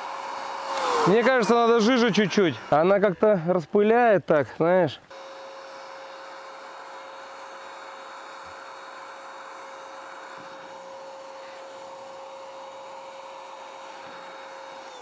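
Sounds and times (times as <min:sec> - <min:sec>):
paint sprayer motor whining: 0:00.0 - 0:03.7, 0:05.0 - 0:15.0
paint spray hissing: 0:05.3 - 0:14.9.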